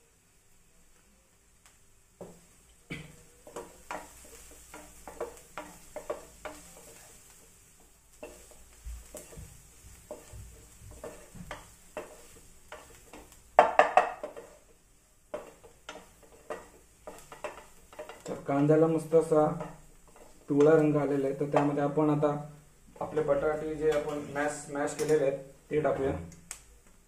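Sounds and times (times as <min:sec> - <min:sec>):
spoon scraping a pan: 0:03.4 - 0:22.2, 0:22.9 - 0:25.3.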